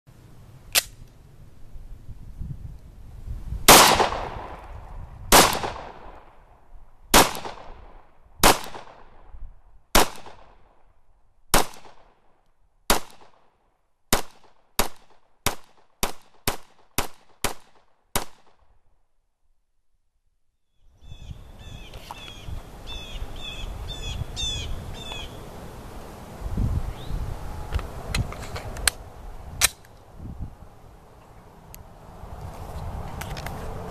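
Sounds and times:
outdoor background noise: 0.1 - 33.9
pistol shots: 3.7 - 4.6, 5.3 - 6.3, 7.1 - 9.2, 9.9 - 10.7, 11.5 - 12.2, 12.9 - 13.4, 14.1 - 18.6
birds chirping: 20.7 - 25.5.

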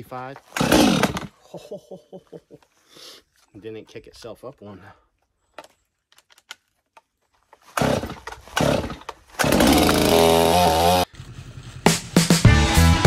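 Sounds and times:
chainsaw engine revving: 0.5 - 1.4, 7.7 - 12.1.

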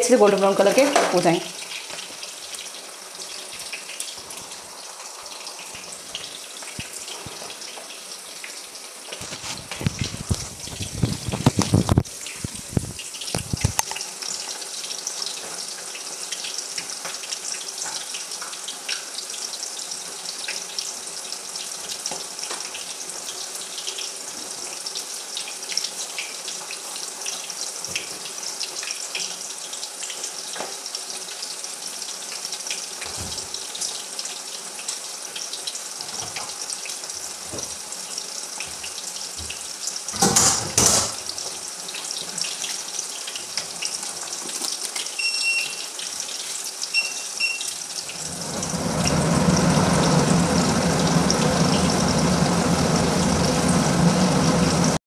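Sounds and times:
potatoes sizzling in hot oil: 0.0 - 55.0
loud burst of noise: 48.1 - 55.0.

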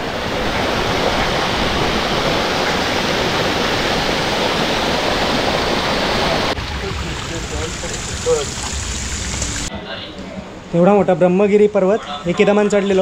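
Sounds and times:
stream rushing over rocks: 0.0 - 9.7.

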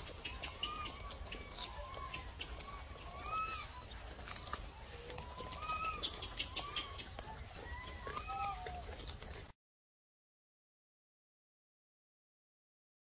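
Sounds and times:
bird-like calls: 0.0 - 9.0
faint chewing clicks: 0.0 - 9.5.

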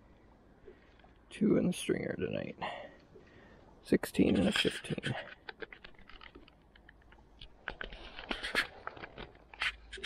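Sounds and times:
light handling clicks and rattles: 4.2 - 10.0.

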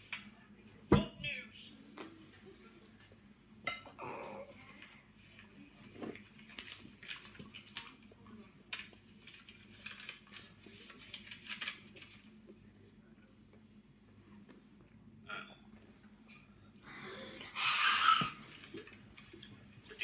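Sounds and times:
tortilla chip crunching: 6.0 - 12.1.

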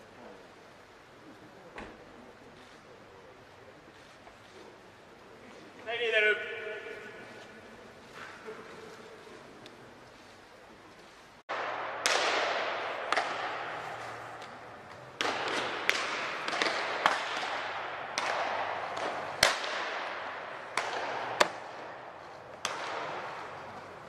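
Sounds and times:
baseballs smacking into gloves: 11.5 - 23.8.

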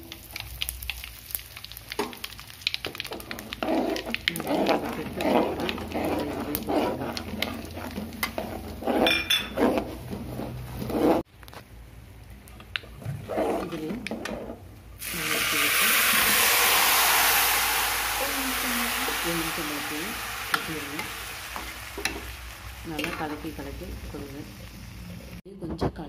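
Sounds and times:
steel spoon scraping a metal pan: 4.0 - 11.2.

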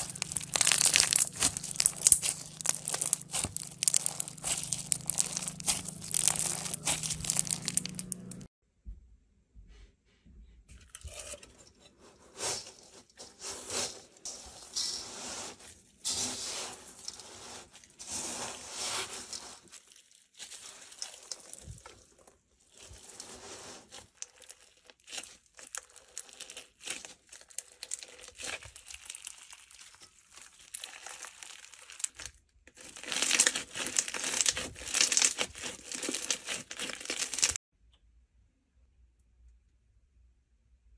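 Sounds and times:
bead slime crackling: 0.0 - 8.5, 23.8 - 37.6.

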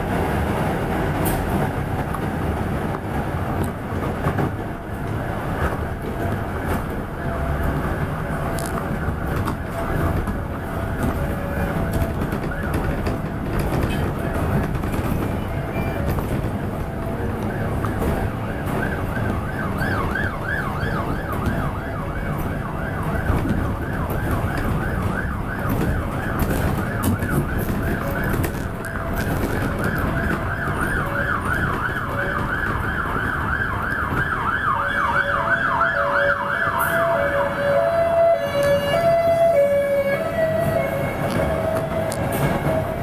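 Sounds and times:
traffic rumble: 0.0 - 43.0
emergency siren yelping: 4.8 - 43.0
lower two-note siren: 17.4 - 43.0.

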